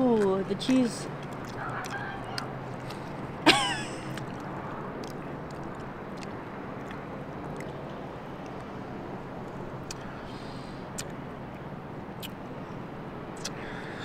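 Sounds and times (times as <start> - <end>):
person chewing food: 0.0 - 8.8, 9.8 - 10.1, 10.9 - 11.2, 13.4 - 13.7
outdoor background hum: 0.0 - 14.0
mouth clicks: 0.1 - 3.2, 10.9 - 11.2, 13.4 - 13.8.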